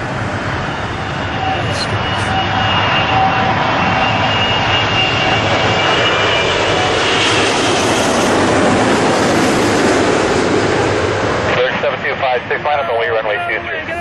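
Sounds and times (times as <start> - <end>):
jet engines roaring: 0.0 - 14.0
faint high whine: 0.5 - 6.8.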